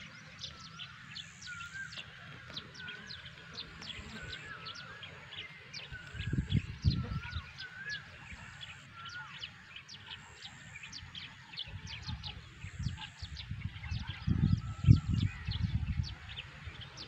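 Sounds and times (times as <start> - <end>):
bird warbling calls: 0.0 - 17.0
small birds chirping: 0.0 - 17.0
low rumbling on microphone: 5.9 - 7.6, 11.8 - 17.0.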